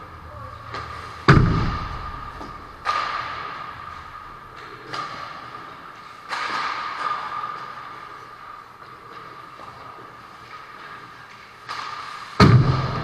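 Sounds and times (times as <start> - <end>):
hockey stick hits: 0.7 - 13.0
loud booming thud: 1.3 - 2.3.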